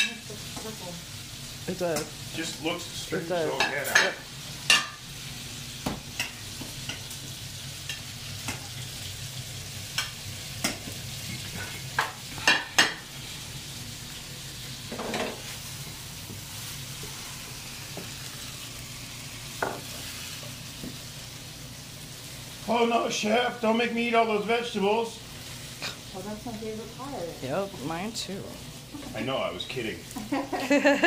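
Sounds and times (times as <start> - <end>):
food sizzling in pans: 0.0 - 31.0
utensil clinking on plates: 3.5 - 5.0.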